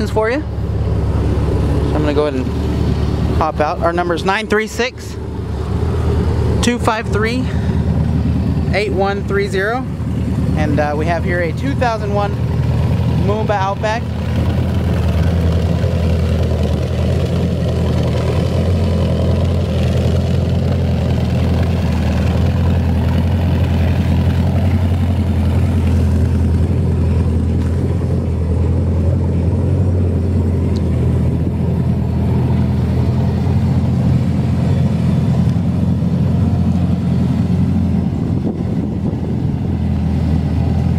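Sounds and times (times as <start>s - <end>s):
boat engine idling: 0.0s - 40.9s.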